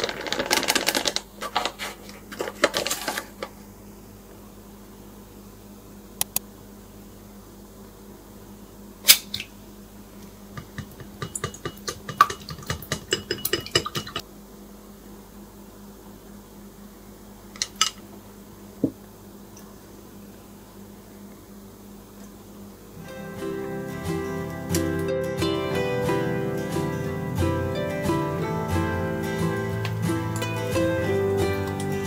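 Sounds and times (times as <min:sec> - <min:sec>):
low steady hum: 0:01.2 - 0:32.0
chopsticks beating egg in bowl: 0:10.5 - 0:14.2
utensils clinking on glass bowls: 0:10.6 - 0:14.2.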